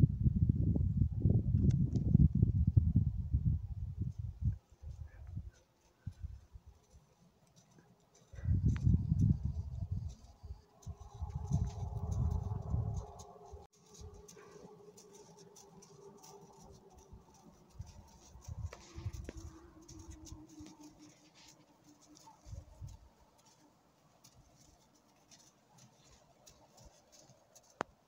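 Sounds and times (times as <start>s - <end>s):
faint rustling: 4.7s - 27.9s
soft low bumps: 8.3s - 14.4s.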